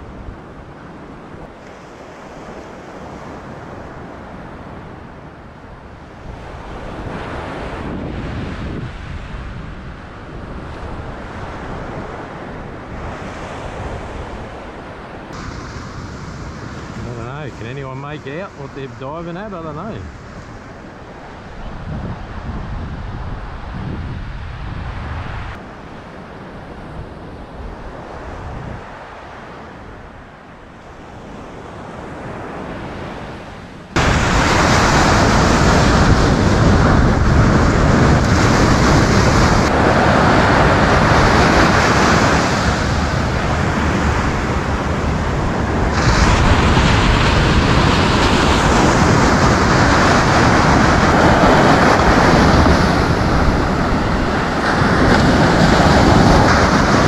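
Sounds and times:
wind on microphone: 0:00.0 - 0:57.0
surf breaking: 0:15.3 - 0:22.7, 0:34.0 - 0:57.0.

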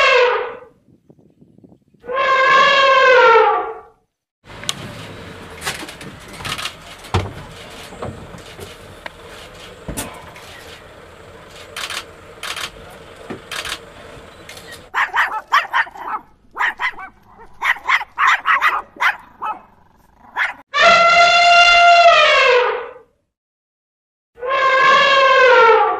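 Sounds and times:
elephant trumpeting: 0:02.0 - 0:03.8, 0:05.1 - 0:15.6, 0:20.8 - 0:22.9, 0:24.4 - 0:25.9
scattered clicks and knocks: 0:04.6 - 0:14.9.

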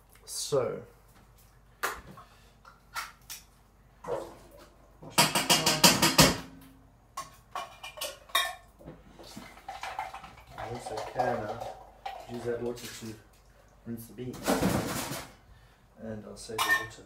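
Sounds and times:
kitchenware clinking at a sink: 0:05.1 - 0:06.6, 0:07.2 - 0:13.2, 0:16.5 - 0:17.0.

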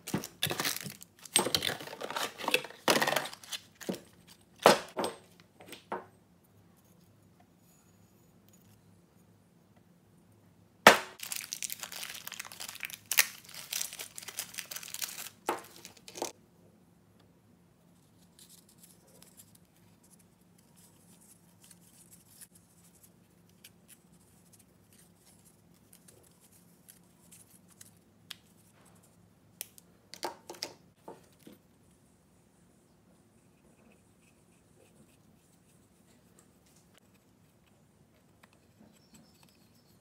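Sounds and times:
packaging crinkling and tearing: 0:00.0 - 0:04.4, 0:11.2 - 0:16.3.

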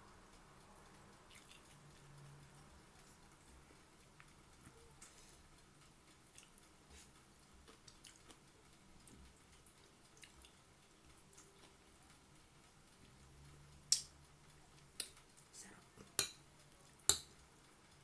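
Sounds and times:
faint chewing: 0:00.8 - 0:13.2.

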